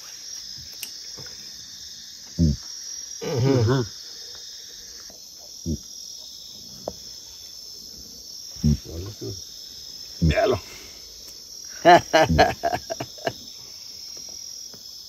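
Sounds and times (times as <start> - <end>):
crickets and night insects chirping: 0.0 - 15.0.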